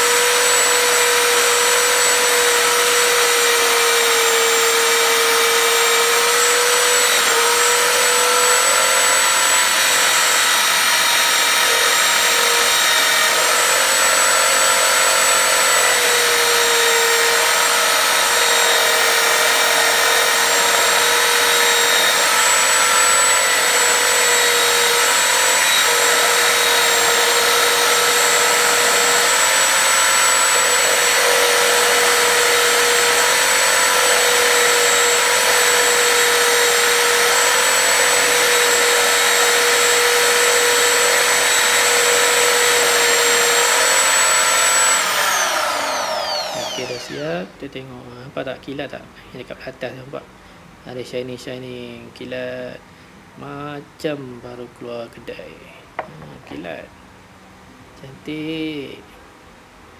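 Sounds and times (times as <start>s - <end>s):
electric drill motor whine: 0.0s - 47.5s.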